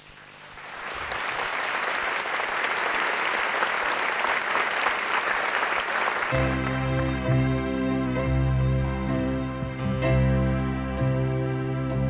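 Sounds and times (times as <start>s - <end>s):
audience applauding: 0.2s - 8.2s
sustained music chords: 6.3s - 12.0s.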